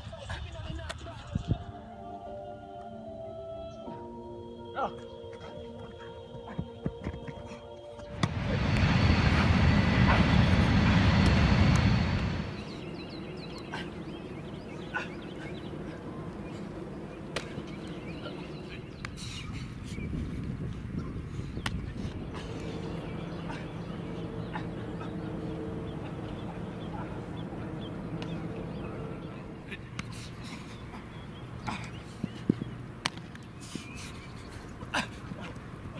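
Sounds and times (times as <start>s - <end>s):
loud rushing noise: 8.1s - 13.3s, 21.7s - 30.3s.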